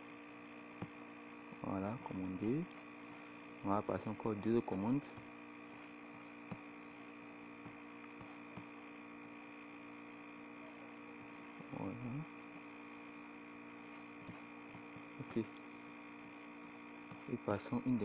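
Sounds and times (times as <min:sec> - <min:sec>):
electrical hum: 0:00.0 - 0:18.0.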